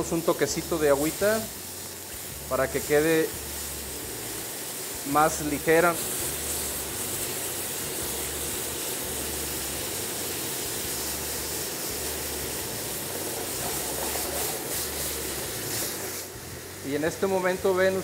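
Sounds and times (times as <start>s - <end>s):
meat sizzling in a frying pan: 0.0s - 18.0s.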